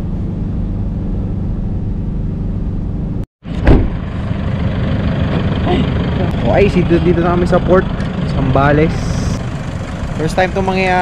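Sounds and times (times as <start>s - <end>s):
van engine and road noise: 0.0s - 11.0s
van engine idling: 0.0s - 11.0s
loud thump: 3.4s - 4.0s.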